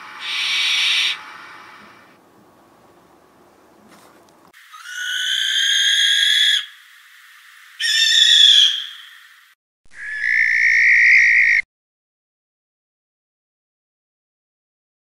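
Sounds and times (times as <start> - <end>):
barn owl screeching: 0.1 - 1.2, 4.6 - 6.8, 7.7 - 9.3, 9.9 - 11.6.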